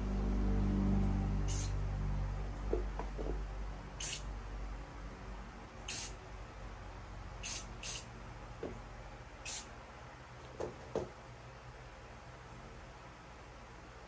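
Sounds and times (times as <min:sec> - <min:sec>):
spray paint can spritzes: 0:01.5 - 0:01.7, 0:04.0 - 0:04.2, 0:05.9 - 0:06.1, 0:07.4 - 0:08.0.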